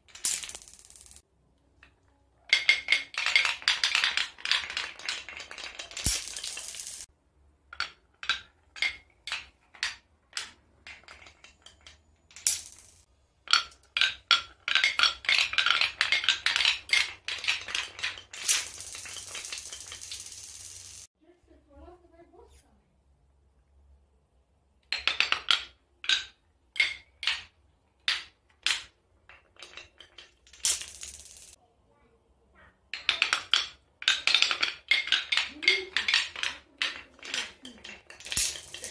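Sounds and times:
marbles clattering down wooden run: 0:00.0 - 0:01.2, 0:02.5 - 0:07.1, 0:07.7 - 0:21.1, 0:28.1 - 0:31.6, 0:33.0 - 0:38.9
marbles rolling on tiled floor: 0:00.0 - 0:01.2, 0:01.8 - 0:21.1, 0:24.8 - 0:31.6, 0:32.9 - 0:38.9
wooden dominoes falling: 0:00.0 - 0:01.2, 0:02.5 - 0:21.1, 0:24.8 - 0:31.6, 0:32.9 - 0:38.9.

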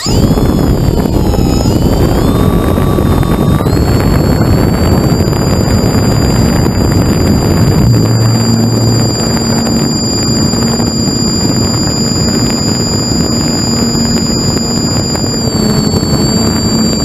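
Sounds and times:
model airplane motor whining: 0:00.0 - 0:17.0
wind rush on microphone: 0:00.0 - 0:17.0.

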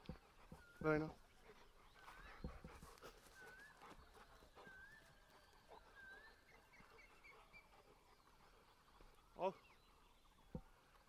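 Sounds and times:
whistled animal calls: 0:01.8 - 0:08.2.

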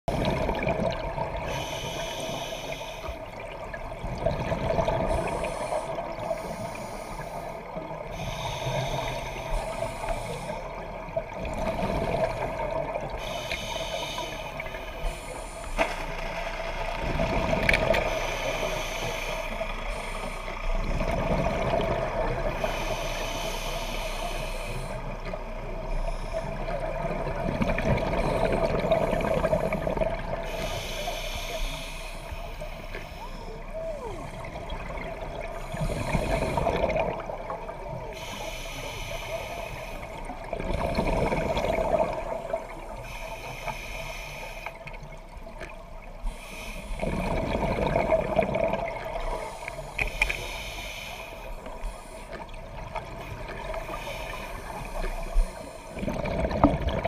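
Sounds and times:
gurgling exhaust bubbles: 0:00.1 - 0:01.4, 0:03.6 - 0:06.2, 0:40.4 - 0:42.7, 0:47.0 - 0:49.4, 0:55.9 - 0:57.0
regulator hissing breaths: 0:01.5 - 0:03.3, 0:05.1 - 0:10.9, 0:13.1 - 0:15.8, 0:18.0 - 0:20.7, 0:22.5 - 0:25.2, 0:28.2 - 0:34.4, 0:35.4 - 0:36.9, 0:38.0 - 0:40.4, 0:42.3 - 0:44.9, 0:46.2 - 0:47.1, 0:49.3 - 0:52.6, 0:53.2 - 0:56.0.

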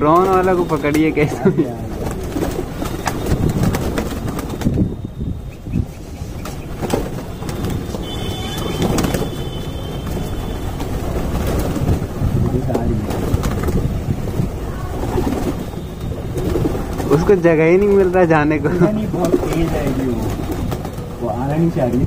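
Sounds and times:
wing flaps: 0:00.0 - 0:18.2, 0:19.0 - 0:21.2
pigeons pecking taps: 0:06.4 - 0:13.9, 0:19.0 - 0:21.2.

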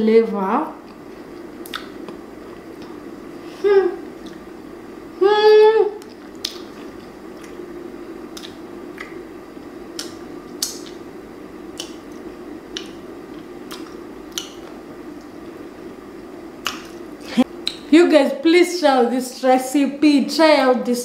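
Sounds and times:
steady low hum: 0:00.0 - 0:21.0
person chewing: 0:00.8 - 0:03.1, 0:04.1 - 0:04.5, 0:06.0 - 0:09.2, 0:09.9 - 0:11.0, 0:11.7 - 0:15.4
lip smacks: 0:01.6 - 0:03.0, 0:06.0 - 0:07.6, 0:08.3 - 0:09.2, 0:09.9 - 0:11.0, 0:11.7 - 0:15.3, 0:16.6 - 0:17.9.

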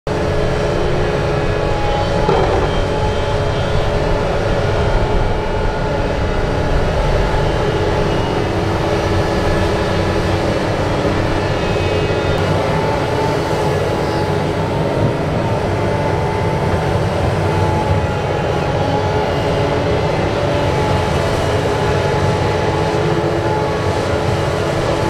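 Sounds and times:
excavator diesel engine under load: 0:00.3 - 0:03.9.

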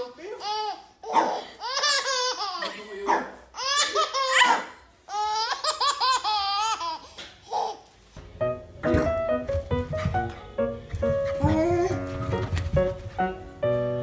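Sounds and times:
baby laughing: 0:00.0 - 0:03.0, 0:03.6 - 0:07.9.

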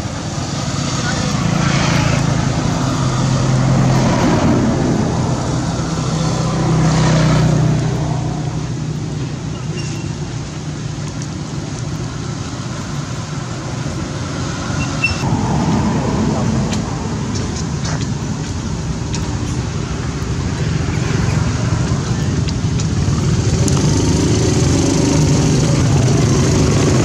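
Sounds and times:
motorbike engine running: 0:21.6 - 0:27.0.

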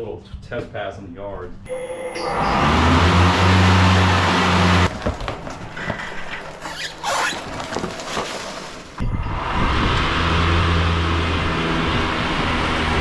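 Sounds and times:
electric mower blades humming: 0:02.2 - 0:05.0.

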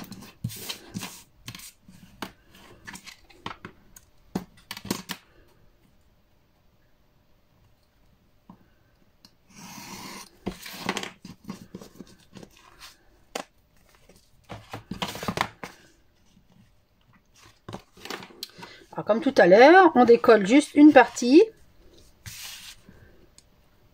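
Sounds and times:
paper and card rustling: 0:10.4 - 0:19.4, 0:20.0 - 0:23.0.

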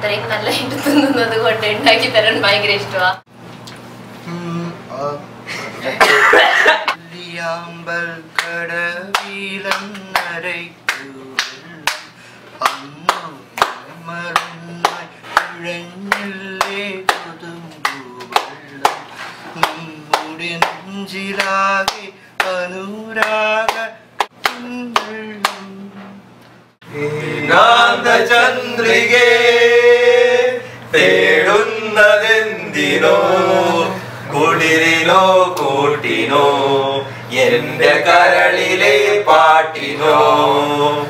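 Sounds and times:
loud male singing: 0:06.9 - 0:26.2, 0:26.8 - 0:41.0
man singing: 0:06.9 - 0:26.2
sharp hand claps: 0:08.4 - 0:22.6, 0:23.2 - 0:25.8.

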